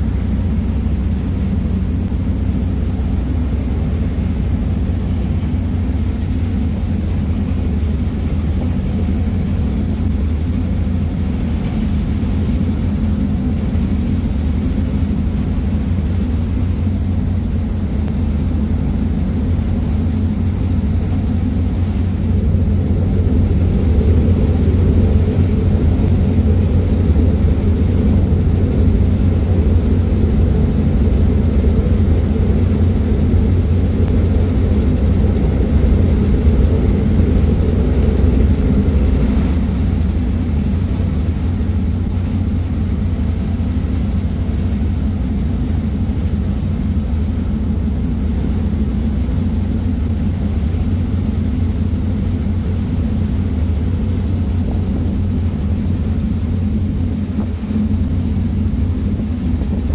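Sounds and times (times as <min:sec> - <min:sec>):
ferry engine rumble: 0:00.0 - 0:59.9
water rushing from wake: 0:00.0 - 0:59.9.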